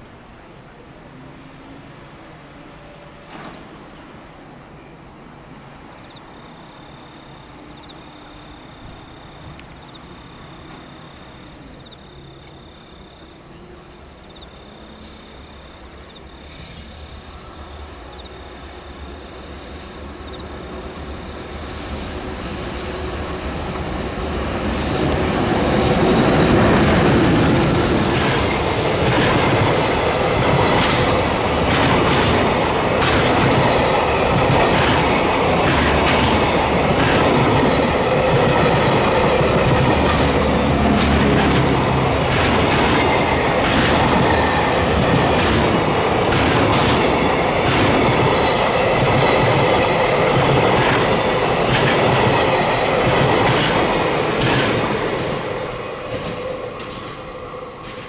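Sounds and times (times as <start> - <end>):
train wheels clacking: 24.8 - 58.0.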